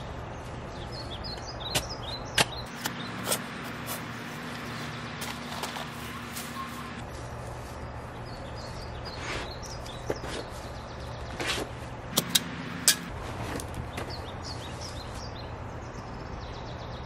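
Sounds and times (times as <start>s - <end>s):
shovel digging into sandy soil: 1.7s - 4.4s.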